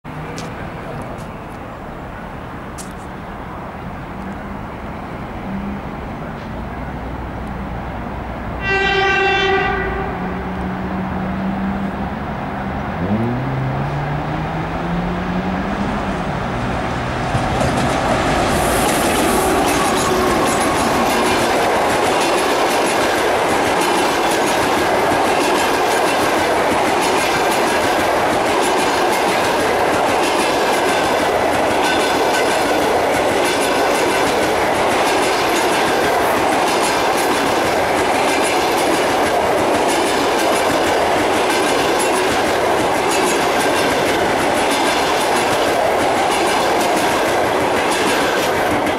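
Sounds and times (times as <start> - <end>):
wheel and rail rush: 0.0 - 48.9
wheels clickety-clack over rail joints: 0.1 - 2.0, 2.7 - 3.3, 6.2 - 48.9
diesel locomotive passing: 0.1 - 48.9.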